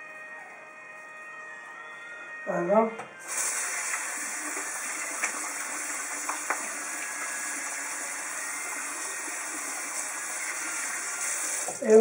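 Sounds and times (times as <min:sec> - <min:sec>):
water running from tap: 0:03.2 - 0:12.0.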